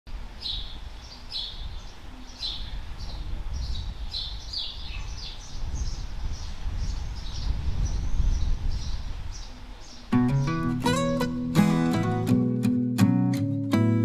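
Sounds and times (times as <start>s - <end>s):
small birds chirping: 0.4s - 11.3s.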